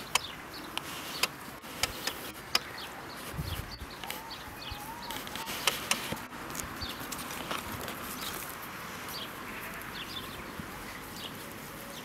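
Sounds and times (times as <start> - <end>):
faint birds chirping: 0.0 - 12.0
hooves stepping on gravel: 0.0 - 12.0.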